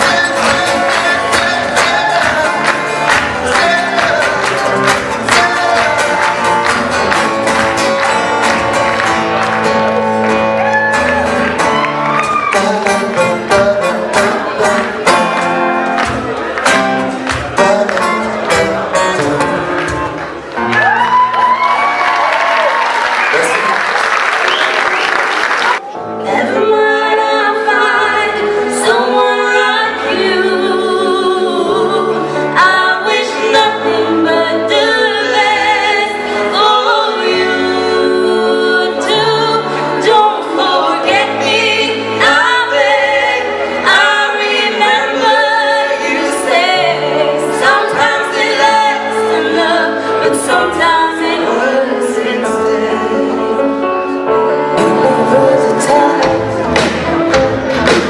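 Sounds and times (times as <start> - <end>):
man singing: 0.0 - 6.7, 12.4 - 15.4, 17.4 - 19.9, 50.2 - 58.0
instrumental accompaniment: 0.0 - 21.6, 25.7 - 58.0
woman singing: 26.0 - 53.7, 54.7 - 56.6
bass line: 54.8 - 58.0.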